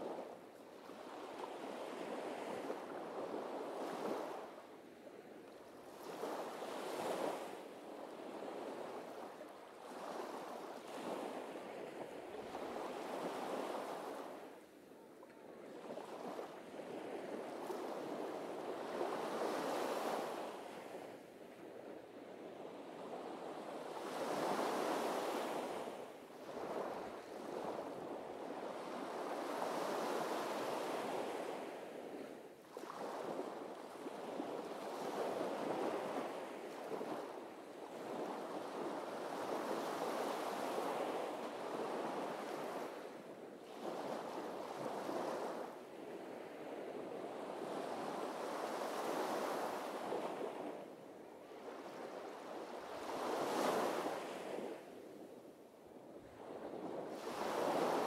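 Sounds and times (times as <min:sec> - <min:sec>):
sea waves breaking on beach: 0:57.1 - 0:58.0.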